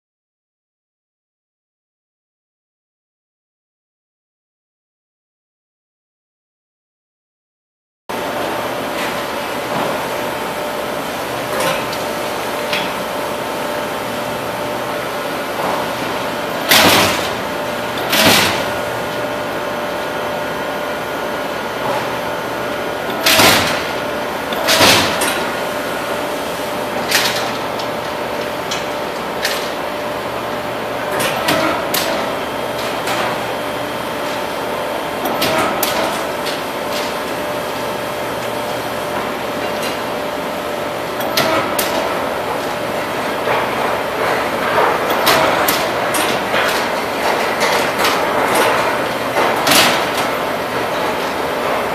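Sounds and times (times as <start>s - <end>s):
machine hum with steady tones: 8.1s - 51.9s.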